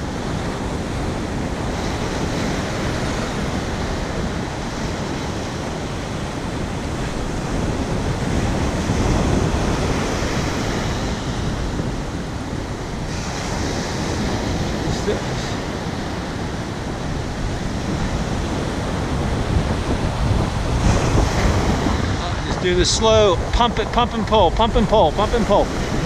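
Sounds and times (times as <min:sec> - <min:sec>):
ocean surf breaking: 0:00.0 - 0:26.0
wind buffeting microphone: 0:00.0 - 0:26.0.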